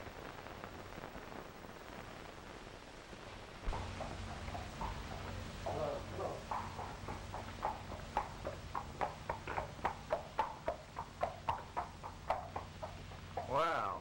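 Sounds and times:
low hum of film soundtrack: 0.0s - 14.0s
horse hooves clip-clopping: 3.6s - 14.0s.

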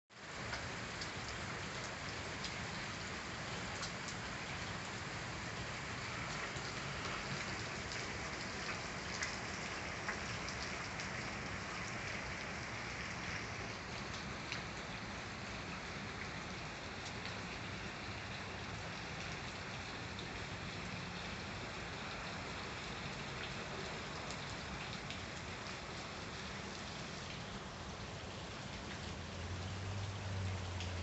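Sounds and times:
rain falling on puddles and pavement: 0.1s - 31.0s
single raindrops ticking: 28.7s - 31.0s.

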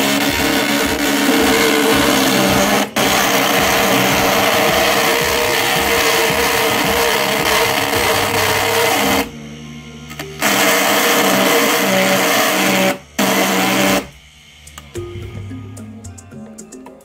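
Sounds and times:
tool scraping spinning wood: 0.0s - 9.3s
lathe motor humming: 0.0s - 16.0s.

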